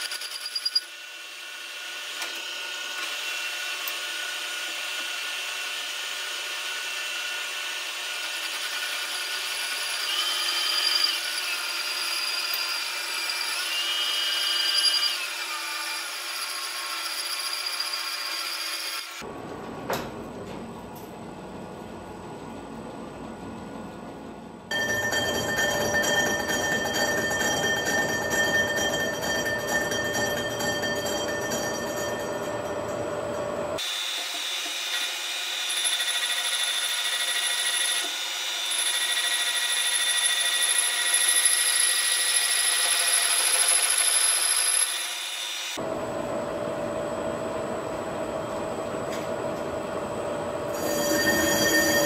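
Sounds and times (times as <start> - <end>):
high ringing tones: 24.7 - 33.8, 50.6 - 52.0.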